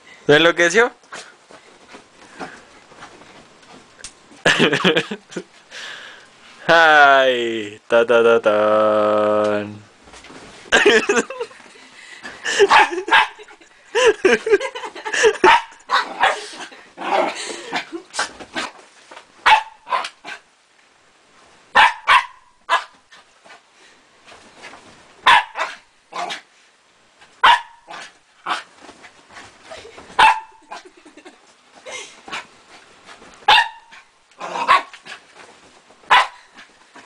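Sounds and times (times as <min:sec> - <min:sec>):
small dog barking: 0:12.6 - 0:13.4, 0:15.4 - 0:17.4, 0:19.4 - 0:20.4, 0:21.7 - 0:23.0, 0:25.2 - 0:26.4, 0:27.4 - 0:28.7, 0:30.2 - 0:30.9, 0:33.4 - 0:34.9, 0:36.1 - 0:36.4.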